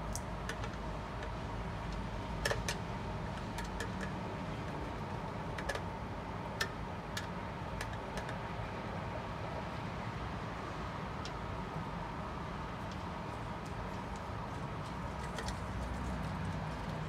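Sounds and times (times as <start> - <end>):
small plastic clicks and taps: 5.5 - 5.9, 6.6 - 8.4.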